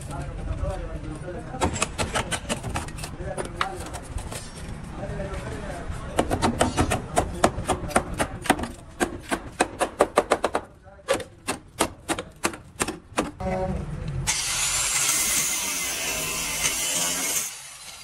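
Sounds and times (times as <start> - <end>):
angle grinder cutting metal: 14.3 - 18.0.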